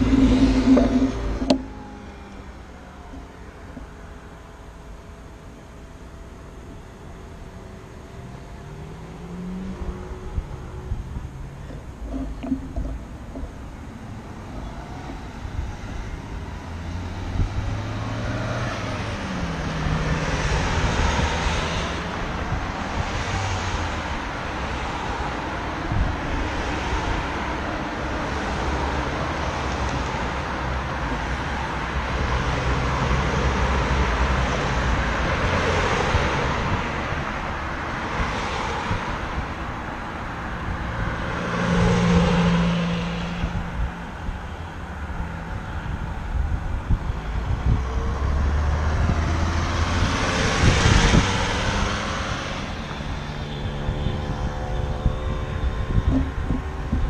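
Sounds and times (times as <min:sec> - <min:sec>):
wind rushing over microphone: 0:00.0 - 0:01.8, 0:09.5 - 0:57.0
road traffic passing: 0:00.0 - 0:57.0.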